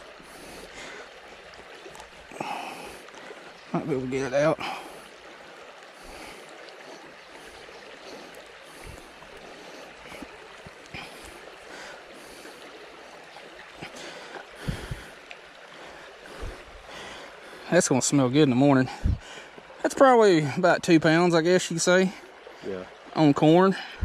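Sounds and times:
stream water flowing: 0:00.0 - 0:24.0
faint ticks: 0:01.5 - 0:03.6, 0:13.3 - 0:15.6.

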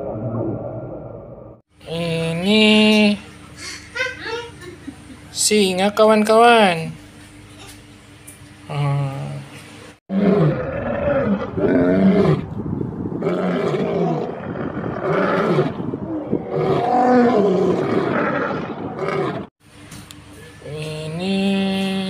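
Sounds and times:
lions roaring: 0:10.1 - 0:12.6, 0:13.2 - 0:19.5.

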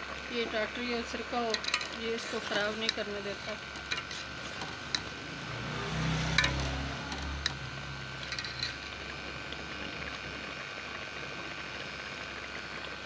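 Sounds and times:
low hum: 0:00.4 - 0:10.7
metal spoon clinking in pot: 0:01.5 - 0:02.0, 0:06.3 - 0:07.6, 0:08.2 - 0:08.9.

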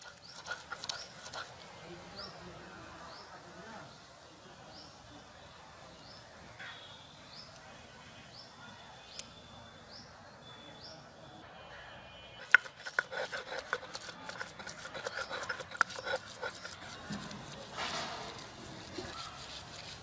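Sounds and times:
stone roller grinding garlic: 0:00.0 - 0:01.5, 0:12.4 - 0:20.0
stone rasping on stone: 0:00.0 - 0:01.6, 0:12.4 - 0:20.0.

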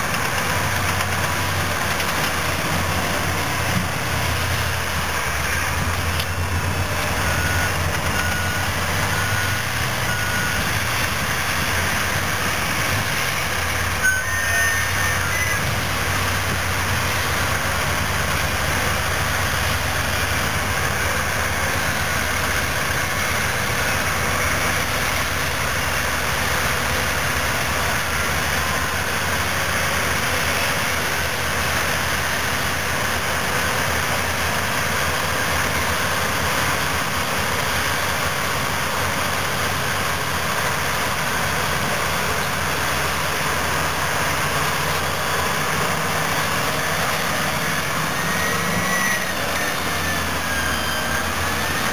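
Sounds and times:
heavy diesel engines running: 0:00.0 - 0:51.9.

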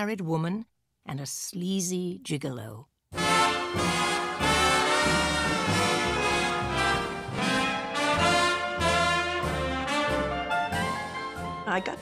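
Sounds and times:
trumpets and trombones: 0:03.1 - 0:11.4
brass band music: 0:03.1 - 0:12.0.

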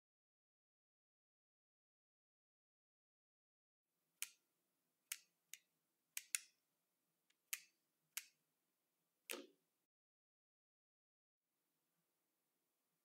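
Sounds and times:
wooden toy crane clicks: 0:06.2 - 0:06.5.

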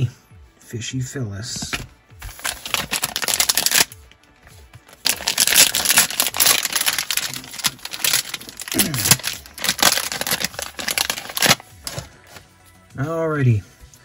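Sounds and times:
background music: 0:00.0 - 0:14.0
plastic wrapper crinkling: 0:02.3 - 0:03.9, 0:04.9 - 0:12.1.

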